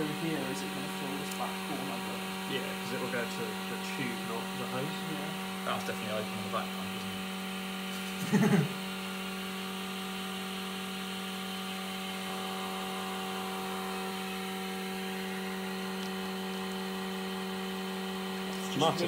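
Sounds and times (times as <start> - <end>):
vacuum pump humming: 0.0 - 19.0.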